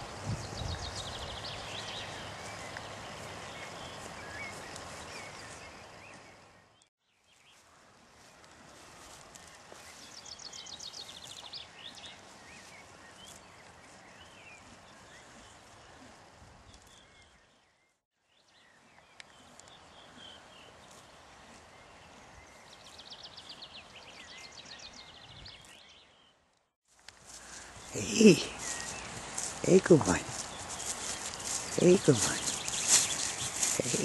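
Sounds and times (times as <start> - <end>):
bird chirps: 27.3 - 34.0.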